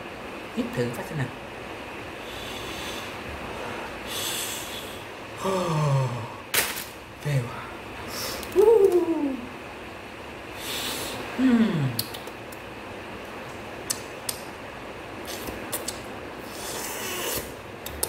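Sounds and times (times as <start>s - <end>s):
man sniffing through nose: 2.3s - 3.2s, 4.0s - 5.0s, 10.6s - 11.3s, 16.4s - 17.6s
man sighing: 5.4s - 6.5s, 11.4s - 12.0s.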